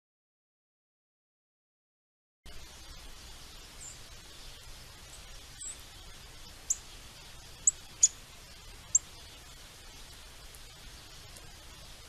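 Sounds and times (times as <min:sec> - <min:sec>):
faint outdoor hiss: 0:02.5 - 0:12.0
songbird chip calls: 0:02.5 - 0:12.0.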